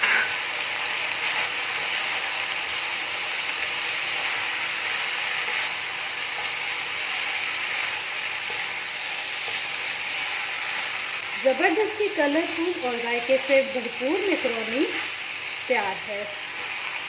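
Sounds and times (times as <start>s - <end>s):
food sizzling in a frying pan: 0.0s - 17.0s
spatula stirring and scraping: 4.0s - 11.5s.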